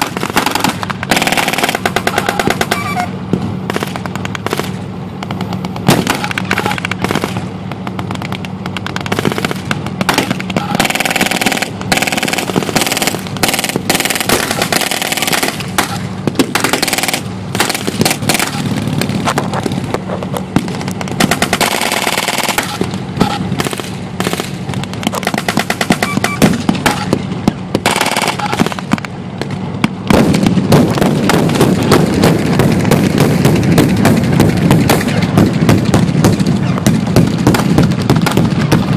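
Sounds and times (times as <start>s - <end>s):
machine gun bursts: 0.0s - 3.1s, 5.8s - 7.4s, 8.7s - 18.8s, 21.1s - 27.2s, 27.8s - 28.8s
armoured vehicle engines: 0.0s - 38.9s
loud low rumble: 0.0s - 38.9s
single rifle shots: 5.5s - 7.6s, 8.7s - 18.8s.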